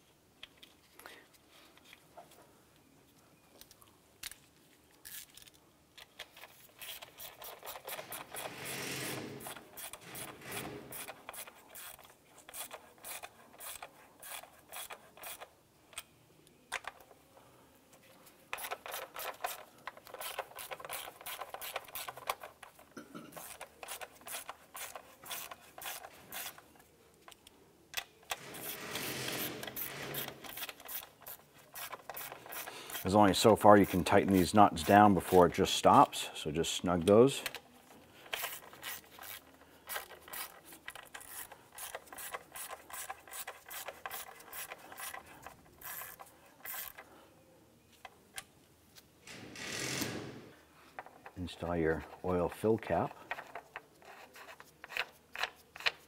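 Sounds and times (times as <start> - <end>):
hand ratchet clicking: 38.3 - 47.0.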